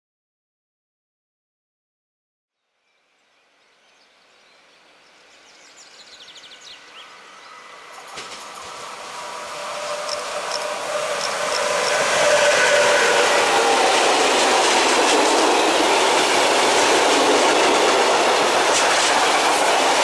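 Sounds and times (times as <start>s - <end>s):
electric locomotive running whine: 6.8s - 20.0s.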